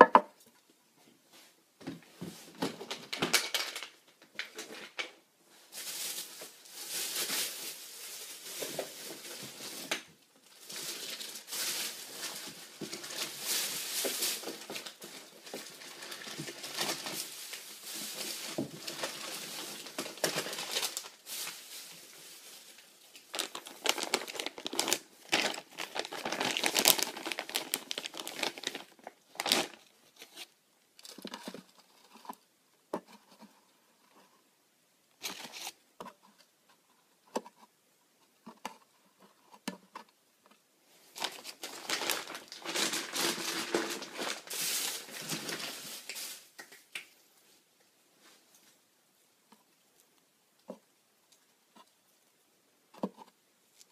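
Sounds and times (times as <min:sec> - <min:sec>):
packaging crinkling and tearing: 0:02.6 - 0:05.1, 0:05.7 - 0:31.7, 0:35.2 - 0:35.8, 0:41.1 - 0:46.6.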